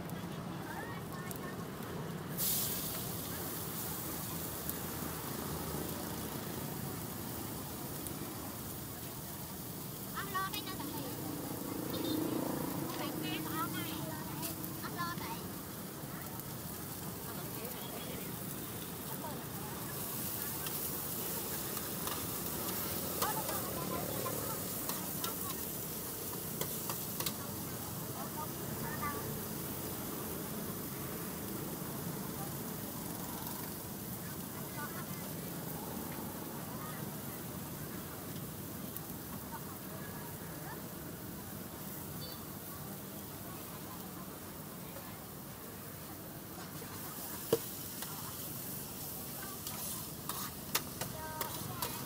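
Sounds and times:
greens sizzling in a wok: 0:00.0 - 0:52.0
metal utensils scraping a pan: 0:49.6 - 0:52.0.

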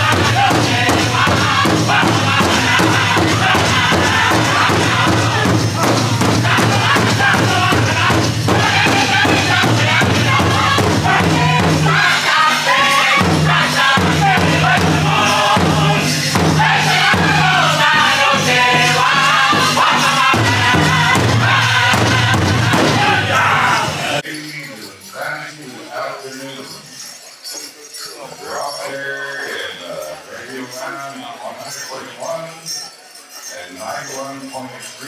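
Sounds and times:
group singing together: 0:00.0 - 0:24.2
large drum steady beat: 0:00.0 - 0:24.2.

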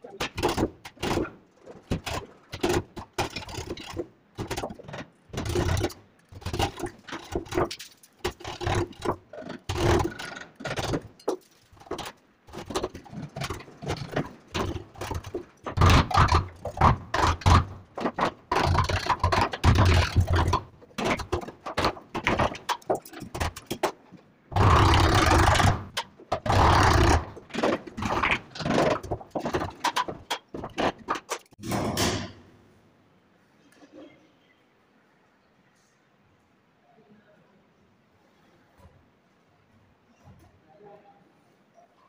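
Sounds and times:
chisel scraping wood: 0:00.2 - 0:31.5.

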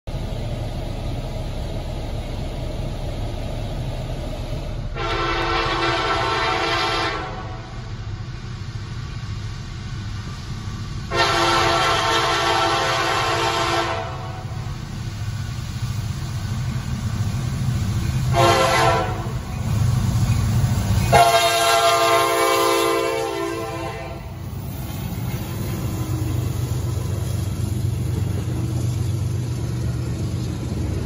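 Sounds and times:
locomotive air horn blasts: 0:04.9 - 0:07.8, 0:11.1 - 0:14.6, 0:18.3 - 0:19.4, 0:21.1 - 0:24.3
low rumble: 0:14.2 - 0:31.0.

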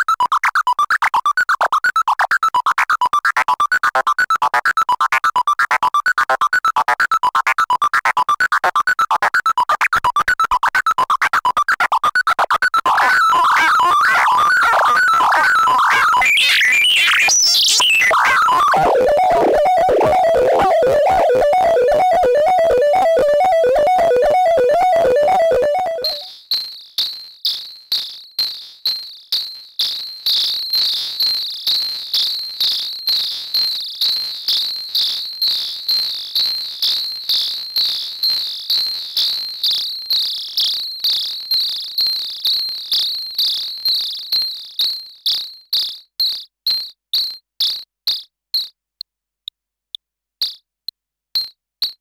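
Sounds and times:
synthesizer insect-like chirps: 0:00.0 - 0:26.3.

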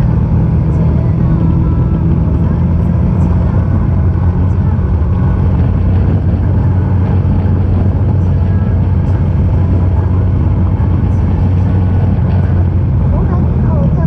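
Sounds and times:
motorcycle engine running: 0:00.0 - 0:14.0
road noise: 0:00.0 - 0:14.0
wind: 0:00.0 - 0:14.0.

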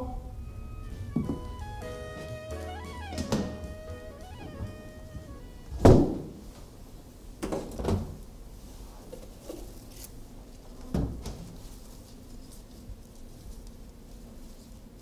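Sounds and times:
music cue: 0:00.0 - 0:06.0.

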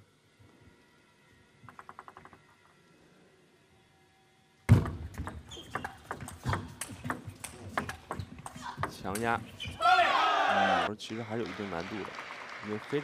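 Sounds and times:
shoes squeaking on floor: 0:05.2 - 0:06.8, 0:07.6 - 0:09.8.

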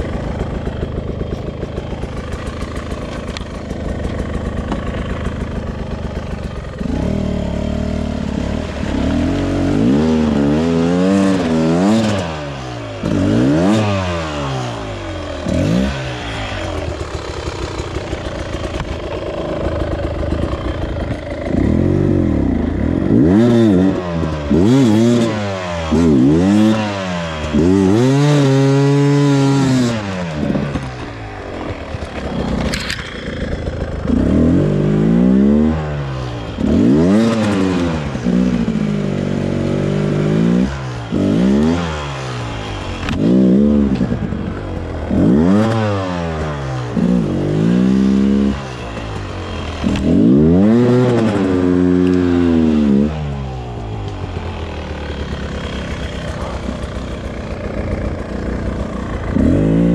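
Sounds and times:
two-stroke engine revving: 0:00.0 - 0:59.9.

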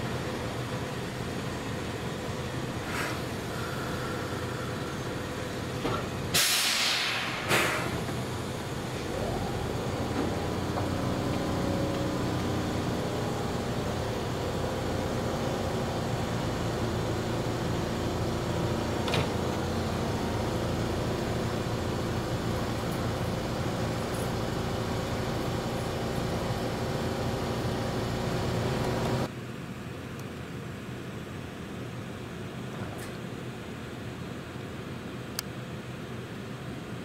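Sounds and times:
electric train humming: 0:00.0 - 0:29.3.

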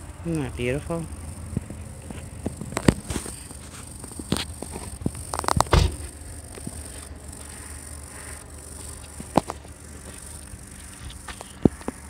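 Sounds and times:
high-pitched hiss: 0:00.0 - 0:12.0
sharp clicks: 0:01.5 - 0:07.6.

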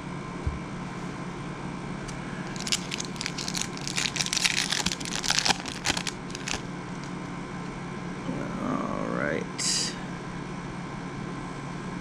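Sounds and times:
foil wrapper tearing and crinkling: 0:02.4 - 0:07.1.

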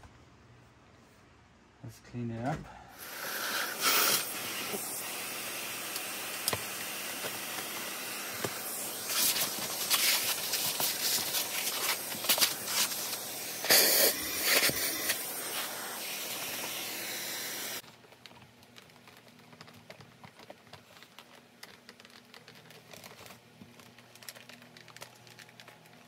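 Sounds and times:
vacuum cleaner rushing hiss: 0:02.9 - 0:17.8.

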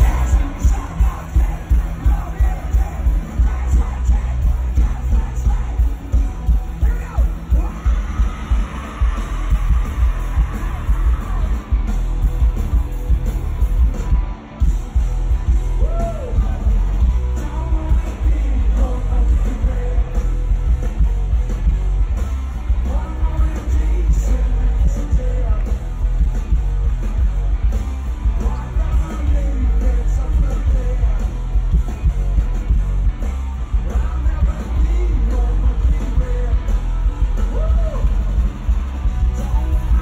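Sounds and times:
live rock band playing: 0:00.0 - 0:40.0
singer yelling: 0:06.6 - 0:11.8.

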